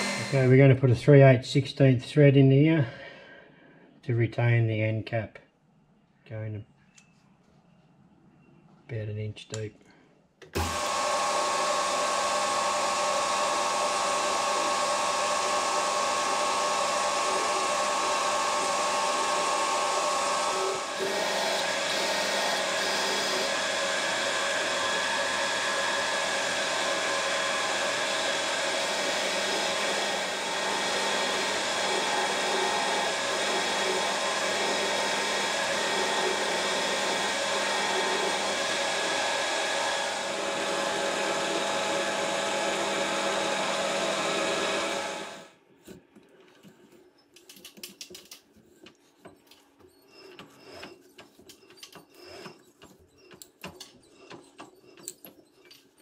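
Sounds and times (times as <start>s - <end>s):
metal lathe drilling with whine: 0.0s - 0.6s, 10.6s - 45.6s.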